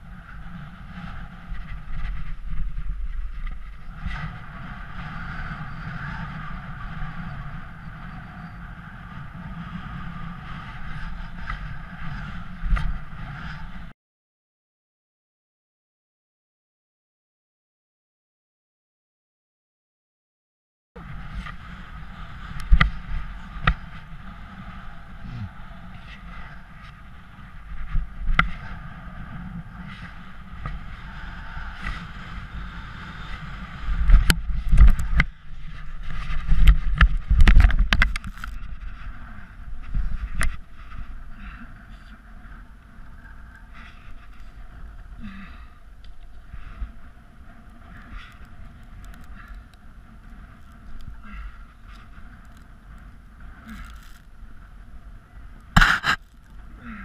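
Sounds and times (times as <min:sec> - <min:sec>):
wheels rumbling over sand: 0:00.0 - 0:13.9, 0:21.0 - 0:57.0
wind buffeting microphone: 0:00.0 - 0:13.9, 0:21.0 - 0:57.0.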